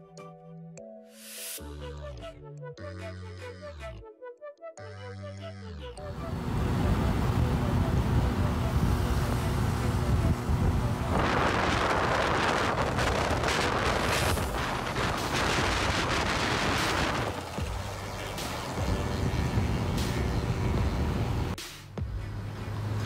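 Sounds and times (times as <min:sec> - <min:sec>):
wind buffeting microphone: 0:06.4 - 0:18.2
motorcycle engine at full throttle: 0:06.6 - 0:21.6.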